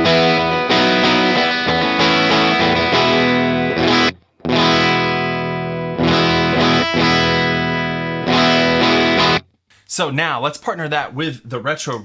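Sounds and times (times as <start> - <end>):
electric guitar chords ringing: 0.0 - 9.4.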